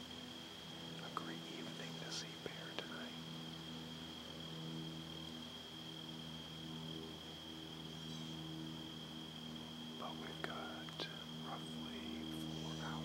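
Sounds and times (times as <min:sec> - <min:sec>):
faint hiss: 0:00.0 - 0:13.0
high-pitched whine: 0:00.0 - 0:13.0
low steady hum: 0:00.0 - 0:13.0.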